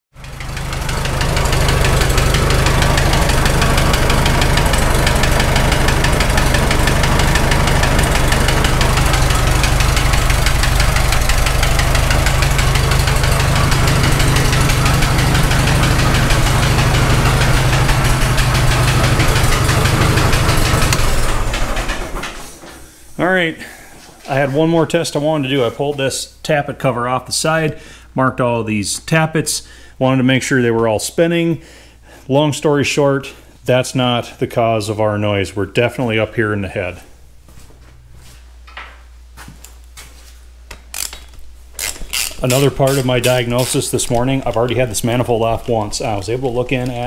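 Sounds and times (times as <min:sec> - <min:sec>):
tractor engine idling with knock: 0:00.2 - 0:22.8, 0:41.9 - 0:47.0.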